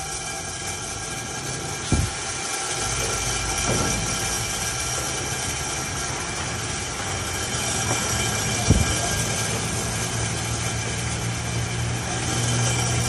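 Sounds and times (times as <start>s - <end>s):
roaster hum: 0.0s - 13.0s
gas hiss: 1.6s - 6.5s
sharp knock: 1.9s - 2.2s.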